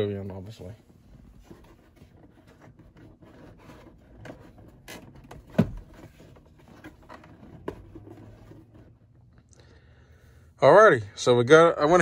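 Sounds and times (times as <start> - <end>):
cardboard rubbing and scraping: 1.2 - 9.1.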